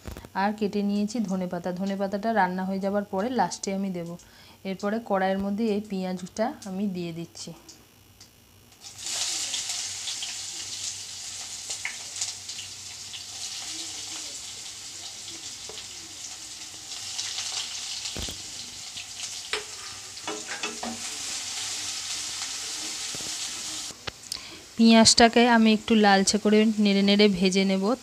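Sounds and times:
onion sizzling in hot oil: 0:08.7 - 0:28.0
spatula scraping a pan: 0:19.5 - 0:21.3.

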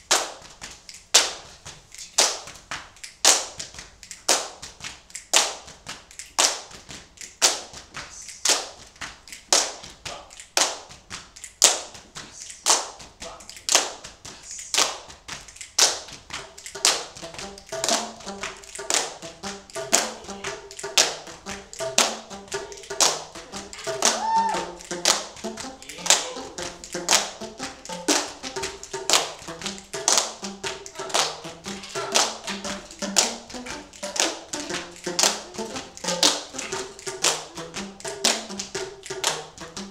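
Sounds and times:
body-percussion taps: 0:00.0 - 0:39.9
group hand-clapping: 0:00.0 - 0:39.9
plastic percussion tubes struck: 0:16.3 - 0:39.9.

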